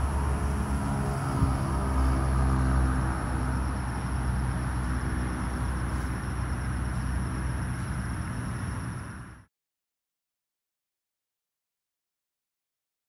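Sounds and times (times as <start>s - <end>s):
steady high-pitched whine: 0.0s - 9.5s.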